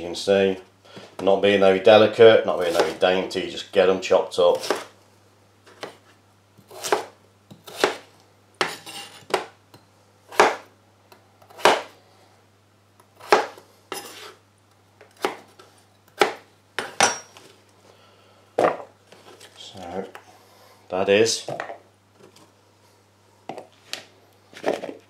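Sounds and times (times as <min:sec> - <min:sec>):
knife chopping on cutting board: 0:02.6 - 0:03.0, 0:04.5 - 0:04.9, 0:06.7 - 0:09.5, 0:10.3 - 0:10.7, 0:11.5 - 0:11.9, 0:13.2 - 0:14.3, 0:15.2 - 0:15.6, 0:16.2 - 0:17.2.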